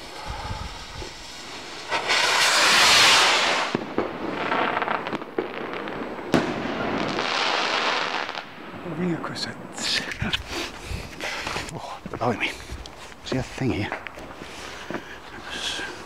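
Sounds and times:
firework rocket launching whoosh: 0.0s - 8.5s
firework bang: 0.0s - 8.6s
firework crackling: 0.0s - 11.6s.

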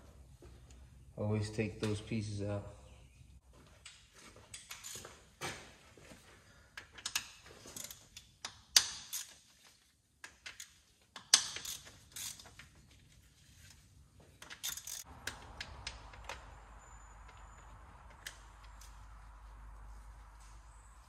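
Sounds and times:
ratchet wrench clicking: 10.2s - 12.4s, 14.4s - 16.4s.

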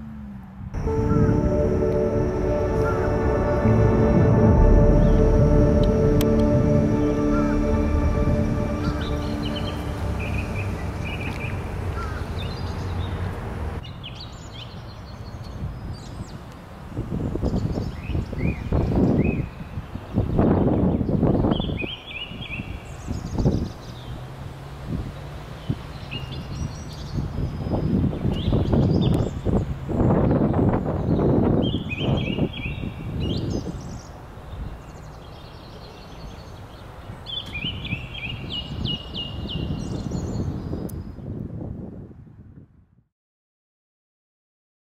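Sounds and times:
loud rough sound: 0.8s - 12.4s
low rumble: 0.8s - 13.0s
small birds chirping and whistling: 37.3s - 41.1s.

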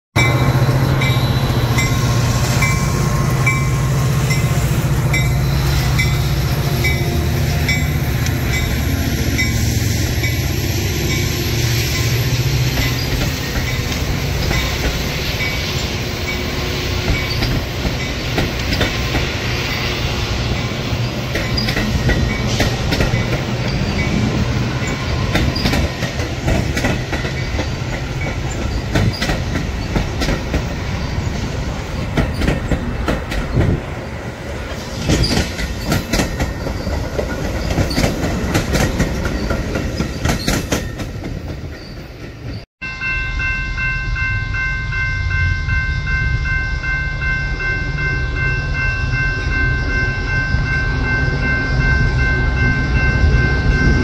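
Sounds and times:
diesel locomotive engine hum: 0.2s - 54.0s
train wheels clattering over rail joints: 17.0s - 19.4s, 21.2s - 24.1s, 24.9s - 30.7s, 32.0s - 33.9s, 34.6s - 42.6s.

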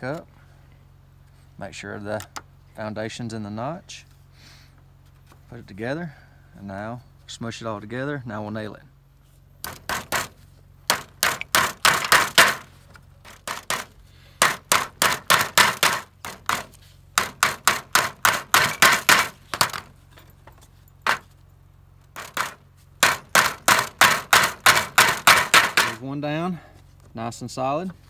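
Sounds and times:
hammer tapping nails into wood: 10.9s - 12.6s, 13.4s - 19.8s, 22.2s - 26.0s.

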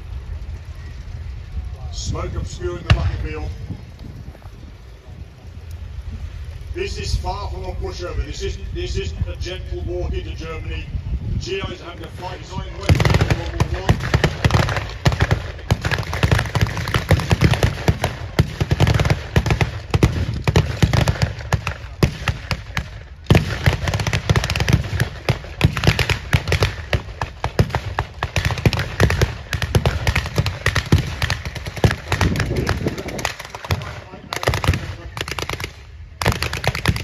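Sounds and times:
steady low rumble: 0.0s - 37.0s
rapid gunfire: 11.5s - 37.0s.

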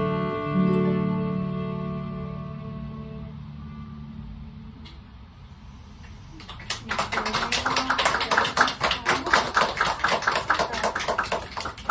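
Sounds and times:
audience applauding: 6.3s - 11.9s.

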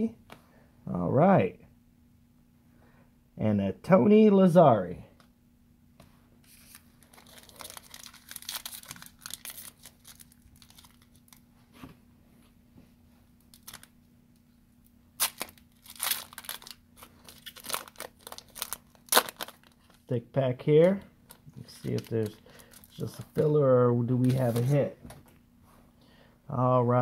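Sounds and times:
foil wrapper crinkling and tearing: 6.5s - 11.4s, 13.5s - 13.9s, 15.2s - 20.1s, 20.8s - 23.4s, 24.2s - 24.8s.

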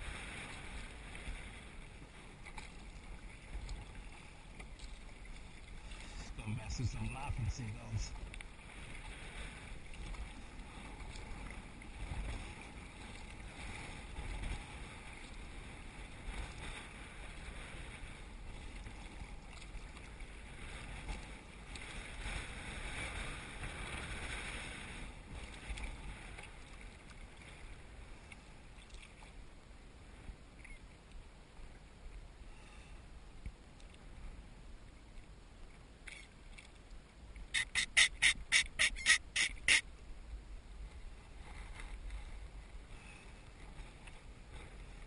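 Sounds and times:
paddle strokes splashing: 0.0s - 29.4s, 36.1s - 39.9s
water lapping at hull: 0.0s - 45.0s.

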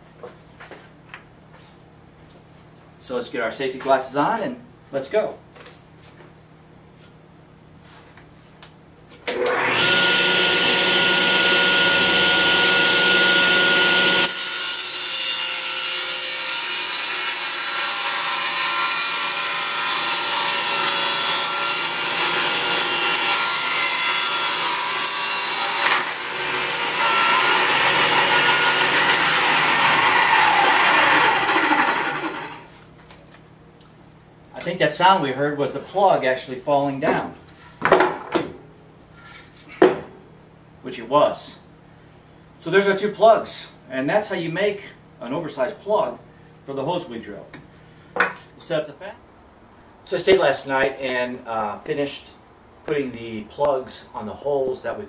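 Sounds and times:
saw cutting through wood: 9.3s - 32.7s
table saw whining: 9.3s - 32.7s.

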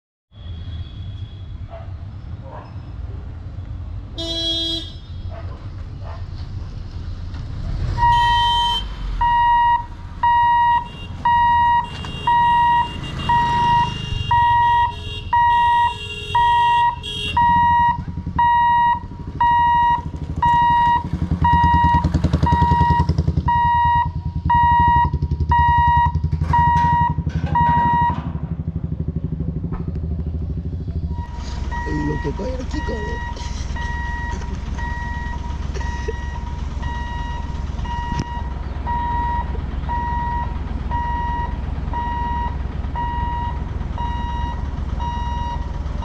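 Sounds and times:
low engine rumble: 5.2s - 46.0s.

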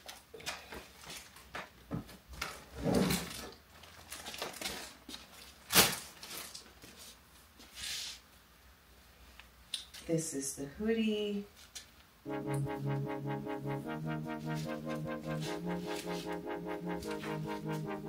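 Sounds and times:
plastic bags crinkling: 3.8s - 6.7s.

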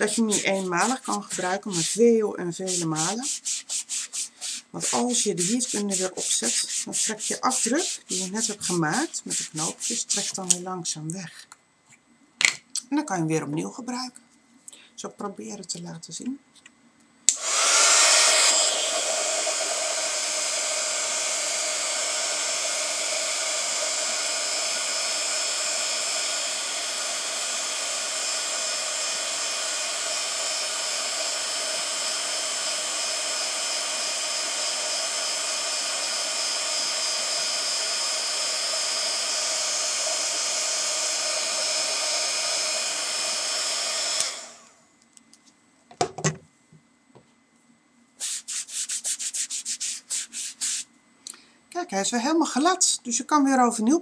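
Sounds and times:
heat gun blowing with fan whine: 0.0s - 10.6s, 17.3s - 44.8s.

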